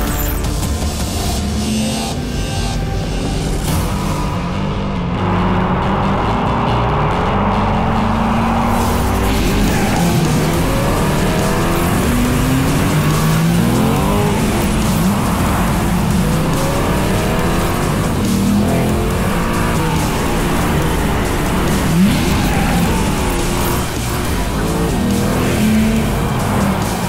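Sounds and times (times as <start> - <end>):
car engine revving hard: 4.5 - 27.0.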